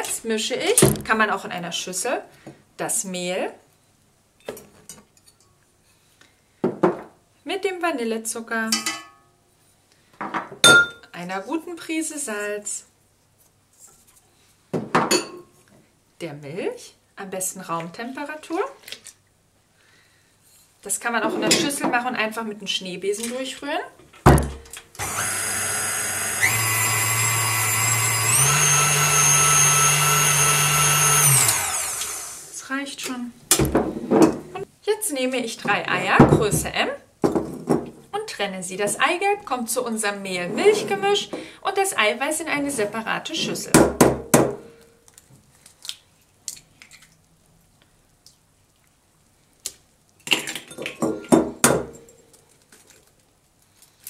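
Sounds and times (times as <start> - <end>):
stand mixer motor whining: 25.0 - 32.6.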